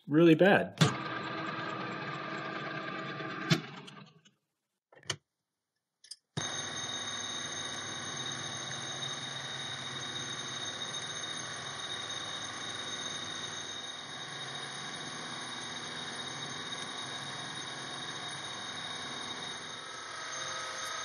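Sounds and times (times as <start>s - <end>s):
machine whir with high whine: 6.4s - 21.0s
metal lathe running: 6.4s - 21.0s.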